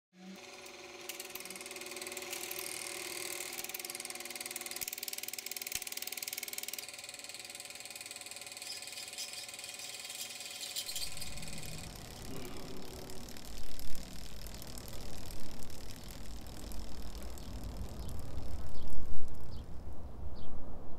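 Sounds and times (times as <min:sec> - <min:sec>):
film projector clatter: 0:00.2 - 0:19.6
projector hum: 0:00.2 - 0:20.0
low rumble: 0:10.9 - 0:20.9.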